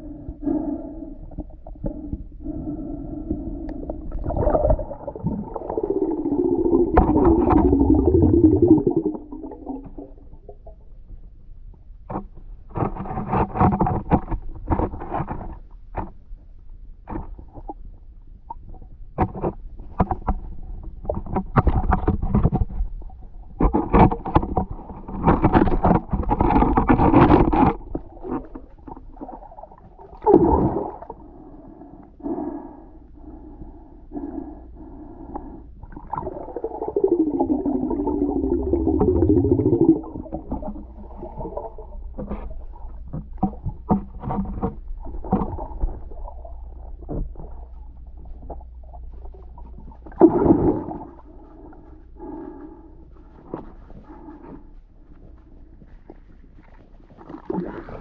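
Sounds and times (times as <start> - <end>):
underwater bubbling rush: 0.0 - 10.8, 24.1 - 31.4, 35.8 - 52.6, 57.0 - 58.0
underwater clicks and knocks: 3.2 - 31.2, 35.8 - 52.6.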